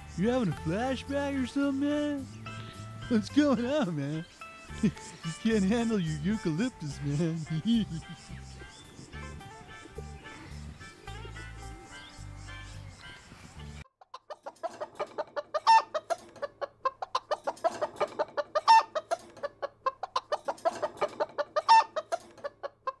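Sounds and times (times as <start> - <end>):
background music: 0.0 - 13.8
chickens clucking: 0.0 - 23.0.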